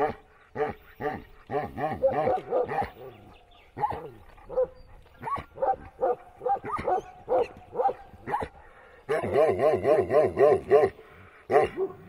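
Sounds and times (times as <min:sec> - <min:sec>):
dog barking: 0:02.0 - 0:03.2, 0:03.8 - 0:12.0.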